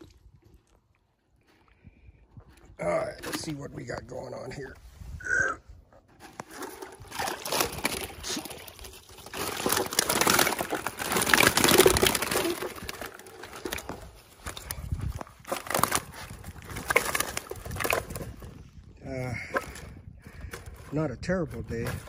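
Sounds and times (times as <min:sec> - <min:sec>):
water sloshing and splashing: 0:06.2 - 0:18.8.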